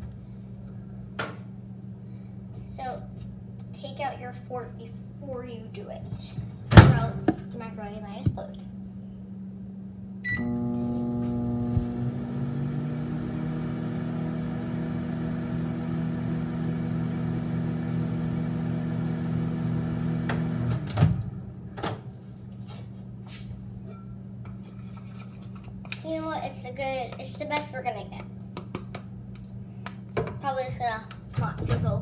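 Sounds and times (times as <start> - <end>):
microwave humming: 6.6 - 22.4
microwave button beep: 10.2 - 10.8
microwave stopping clunk: 10.2 - 22.1.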